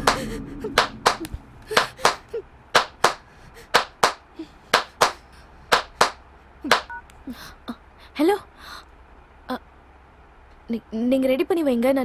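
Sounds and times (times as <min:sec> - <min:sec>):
hand claps: 0:00.8 - 0:02.2, 0:02.8 - 0:03.2, 0:03.8 - 0:04.2, 0:04.8 - 0:06.9.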